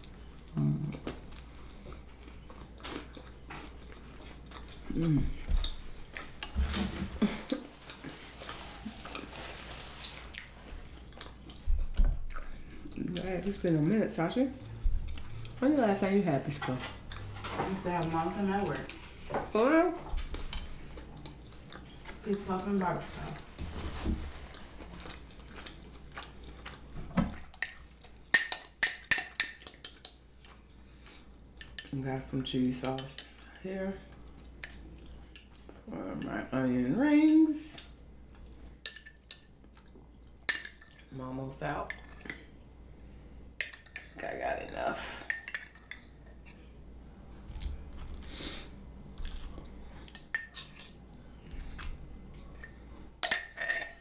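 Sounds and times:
soft chewing: 0.0s - 16.0s, 20.1s - 28.3s, 33.2s - 36.2s, 37.8s - 41.1s, 45.6s - 53.0s
fork clinking on jar: 52.6s - 54.0s.

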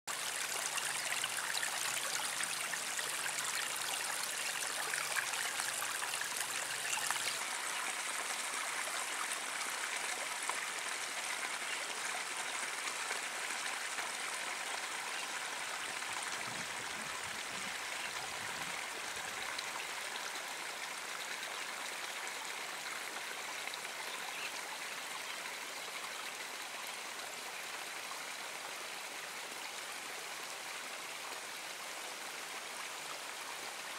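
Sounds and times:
running water trickling: 0.1s - 22.2s.

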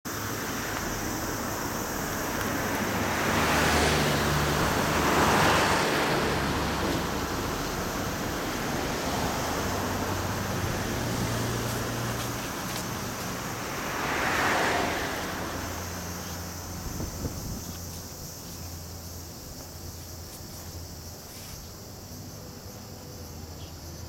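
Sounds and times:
wind over microphone: 16.7s - 18.0s.

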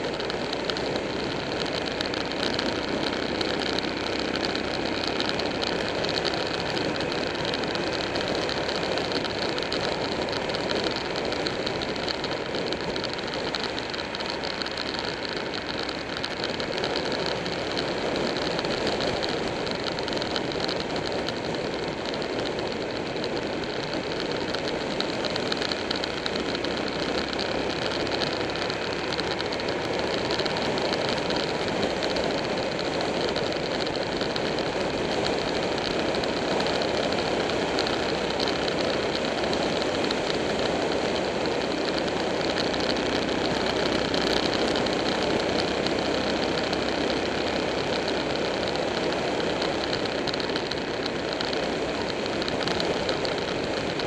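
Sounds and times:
motorcycle engine drone: 0.0s - 54.0s.

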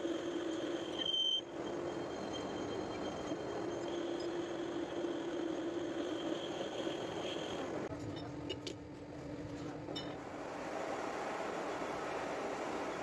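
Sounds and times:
faint high whine: 0.0s - 7.9s
metal lathe humming: 0.0s - 7.9s.

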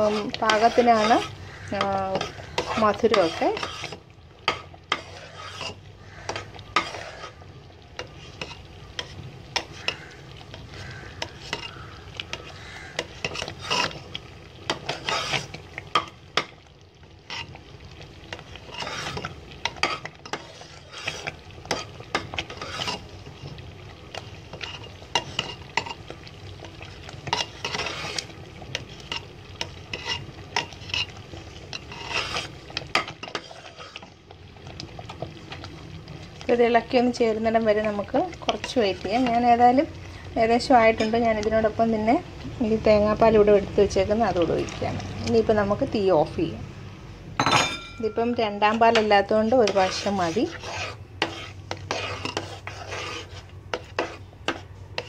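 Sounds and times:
metal ladle scraping a pot: 0.0s - 7.4s, 8.0s - 16.5s, 17.2s - 17.6s, 18.3s - 34.2s, 36.8s - 39.8s, 48.0s - 55.0s.

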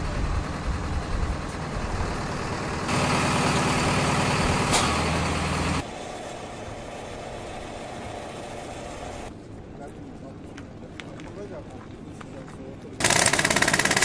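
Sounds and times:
heavy machinery engine running: 0.0s - 9.3s.

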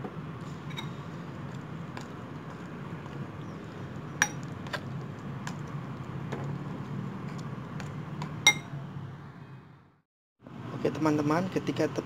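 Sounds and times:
spoon clinking against bowl: 8.5s - 8.7s.

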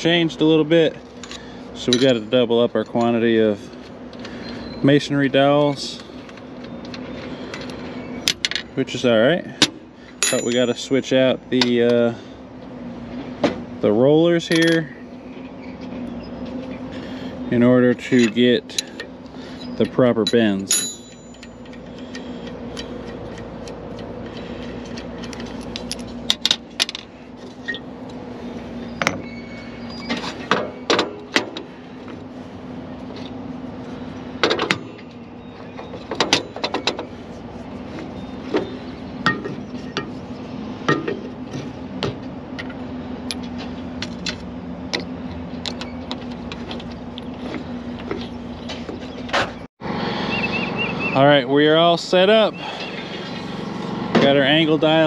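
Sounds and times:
metal tools clinking: 1.1s - 3.8s, 10.1s - 11.1s, 18.0s - 27.9s
small engine humming: 49.8s - 51.2s, 52.4s - 55.0s.

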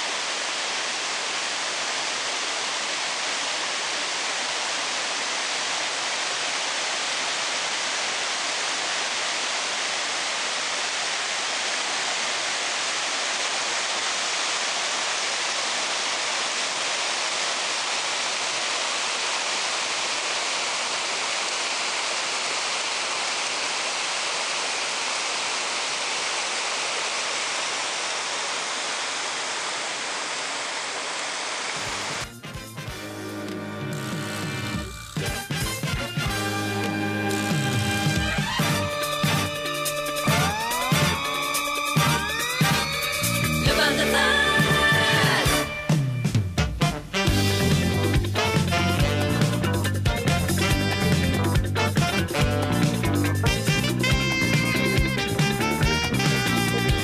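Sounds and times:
mountain stream rushing: 0.0s - 32.2s, 36.3s - 46.3s.

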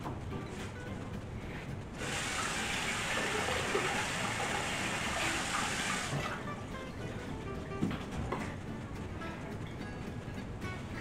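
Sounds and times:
water running into sink: 2.0s - 6.4s.

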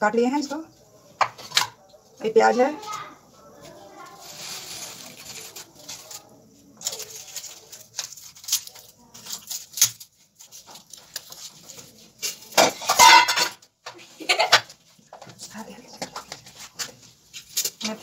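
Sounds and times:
metal kitchenware clinking: 12.2s - 13.7s.

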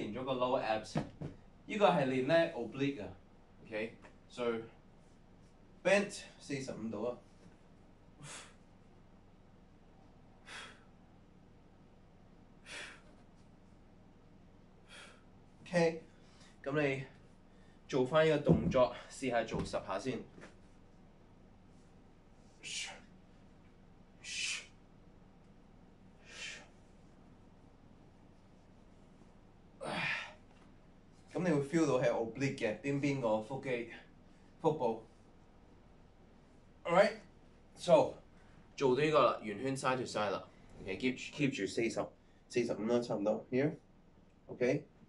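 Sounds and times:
man exhaling sharply: 8.2s - 8.6s, 10.4s - 10.9s, 12.6s - 13.2s, 14.9s - 15.2s, 24.2s - 24.8s, 26.2s - 26.8s, 29.8s - 30.4s.

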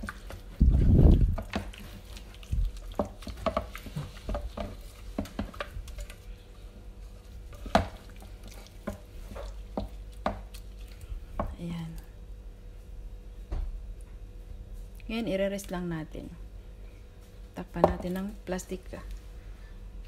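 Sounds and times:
hands squishing meat in marinade: 0.0s - 11.5s.

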